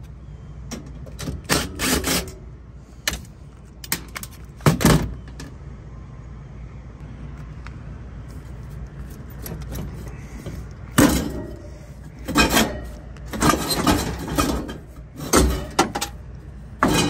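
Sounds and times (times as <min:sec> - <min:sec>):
low steady rumble: 0:00.0 - 0:17.0
metal clanks and rattles: 0:09.1 - 0:17.0.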